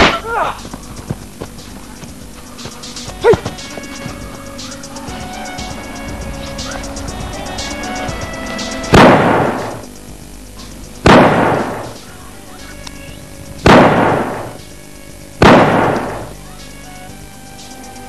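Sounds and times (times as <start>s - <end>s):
background music: 0.0s - 18.0s
pistol shots: 11.0s - 11.9s, 13.6s - 14.5s, 15.4s - 16.2s.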